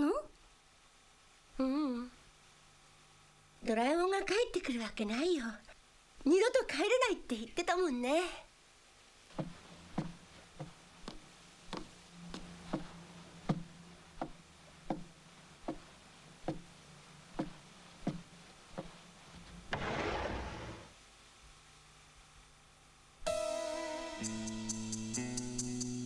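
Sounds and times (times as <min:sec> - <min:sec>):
faint low hum: 0:00.0 - 0:23.5
cartoon footsteps: 0:09.3 - 0:16.7, 0:17.4 - 0:19.0.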